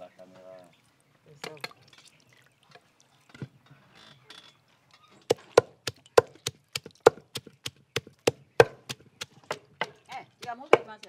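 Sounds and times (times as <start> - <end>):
wooden pestle pounding in mortar: 5.3 - 11.0.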